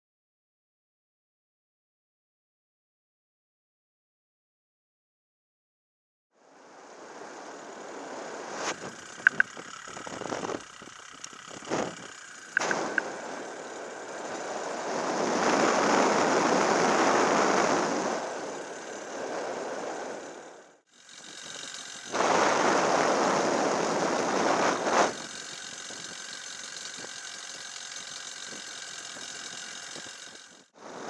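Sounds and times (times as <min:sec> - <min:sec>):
paramotor engine running: 0:06.4 - 0:31.0
sharp clicks: 0:08.8 - 0:13.2.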